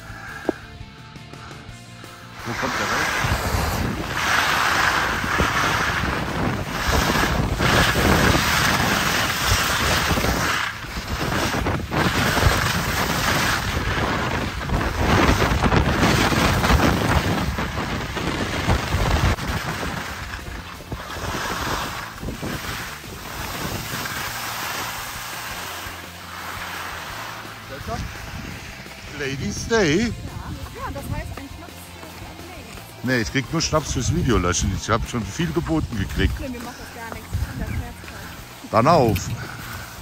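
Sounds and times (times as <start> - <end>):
wind rushing over microphone: 2.3 - 40.0.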